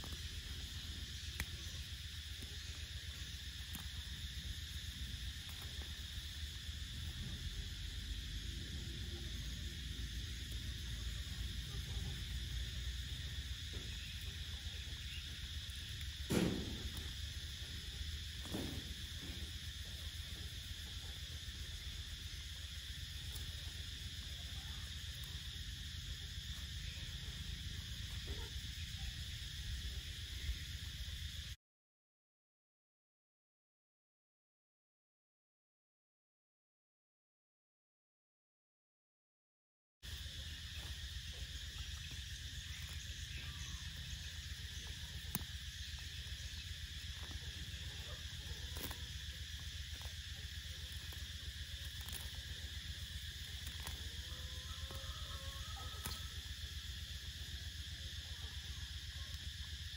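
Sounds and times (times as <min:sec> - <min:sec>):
insects chirring: 0:00.0 - 0:31.6, 0:40.0 - 0:59.9
brief knock: 0:16.3 - 0:16.9.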